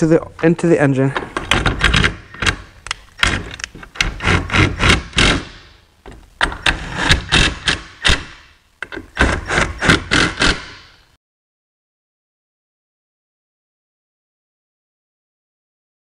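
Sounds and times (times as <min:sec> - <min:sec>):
cordless power tool driving bolts: 0:01.2 - 0:11.0.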